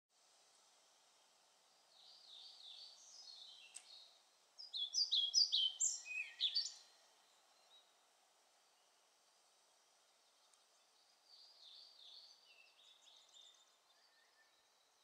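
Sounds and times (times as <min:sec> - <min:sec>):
bird singing: 0:01.9 - 0:08.0, 0:10.0 - 0:15.0
sharp click: 0:03.7 - 0:04.0.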